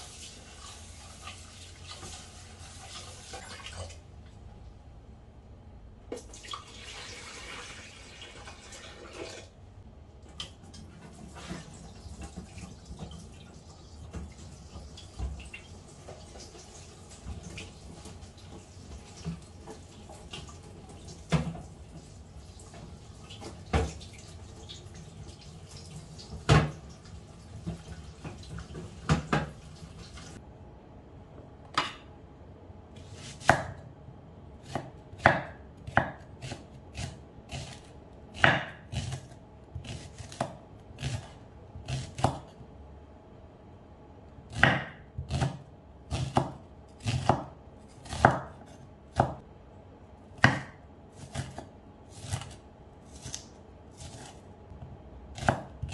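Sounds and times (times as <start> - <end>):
tap water running into sink: 0.0 - 4.0, 6.1 - 9.5
knife chopping on wooden board: 33.2 - 33.8, 34.7 - 42.5, 44.5 - 49.4, 50.4 - 52.6, 55.4 - 55.9.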